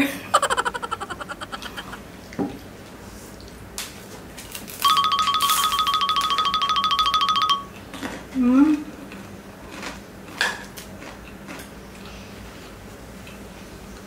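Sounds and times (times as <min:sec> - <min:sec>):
electronic ringtone trill: 0:04.8 - 0:07.7.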